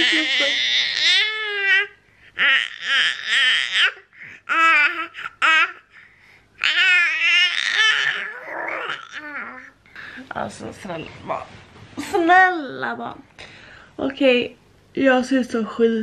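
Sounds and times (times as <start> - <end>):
infant laughing and squealing: 0.0 - 5.8, 6.6 - 9.7.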